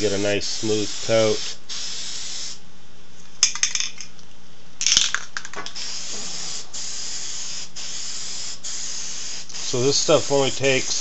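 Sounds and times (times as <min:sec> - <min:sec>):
aerosol spray hiss: 0:00.1 - 0:02.6, 0:05.7 - 0:11.0
spray can rattling: 0:03.4 - 0:04.1, 0:04.8 - 0:11.0.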